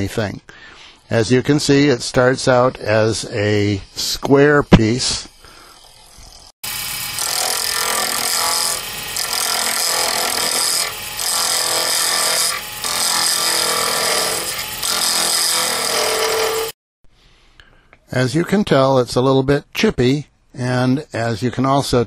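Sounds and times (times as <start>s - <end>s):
lathe tool cutting resin: 5.2s - 16.8s.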